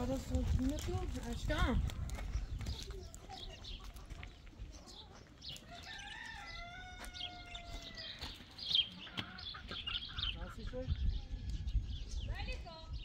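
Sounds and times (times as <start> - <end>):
small birds chirping: 0.0 - 13.0
rooster crowing: 5.6 - 8.1.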